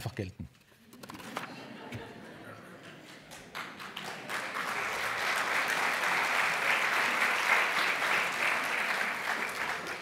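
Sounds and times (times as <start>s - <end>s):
audience applauding: 2.8s - 10.0s.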